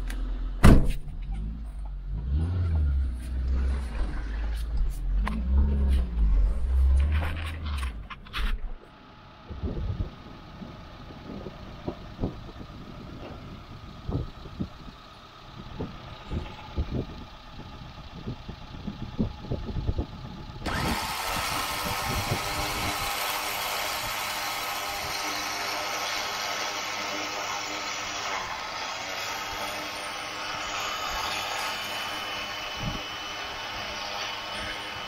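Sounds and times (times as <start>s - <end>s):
vehicle engine idling: 0.0s - 23.0s
electric winch running: 20.6s - 35.0s.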